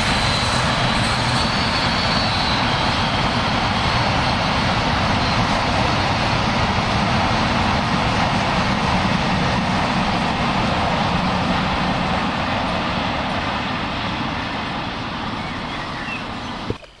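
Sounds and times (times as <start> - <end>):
freight train rumbling on rails: 0.0 - 17.0.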